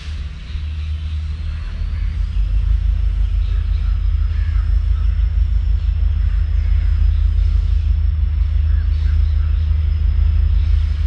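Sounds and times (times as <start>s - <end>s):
diesel locomotive engine drone: 0.0s - 11.0s.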